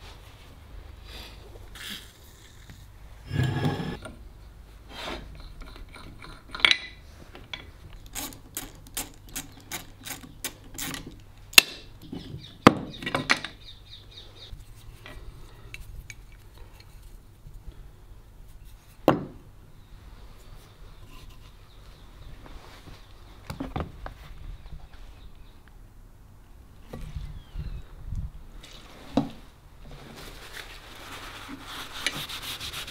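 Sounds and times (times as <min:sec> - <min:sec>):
screwdriver clicking on metal screws: 0:08.0 - 0:11.7.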